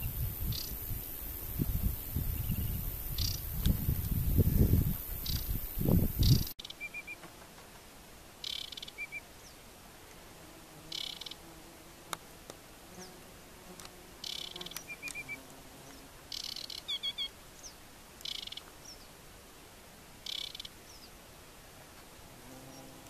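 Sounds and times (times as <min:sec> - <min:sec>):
bird singing rattling phrases: 0:00.0 - 0:07.2, 0:08.4 - 0:09.6, 0:14.2 - 0:15.4, 0:16.3 - 0:19.1.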